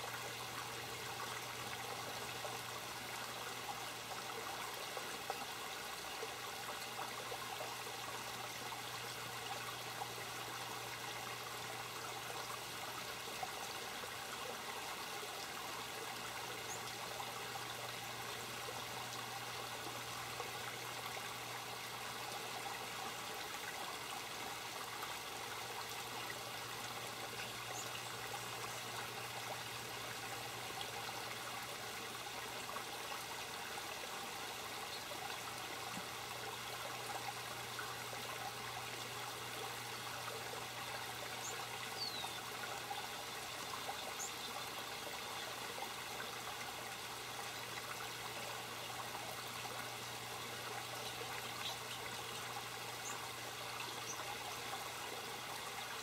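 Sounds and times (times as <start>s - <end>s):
water trickling over rocks: 0.0s - 56.0s.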